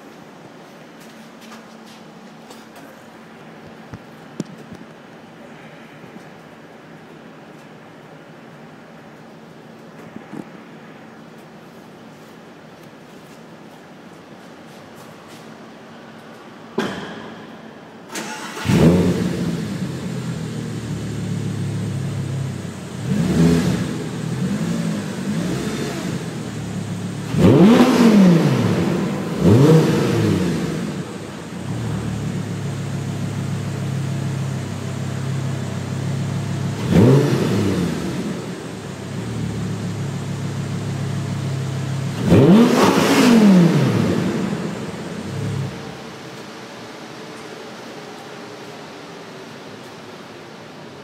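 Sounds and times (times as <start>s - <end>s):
engine revving: 18.2s - 32.8s, 36.6s - 39.9s, 42.0s - 46.0s
car engine idling: 18.2s - 46.9s.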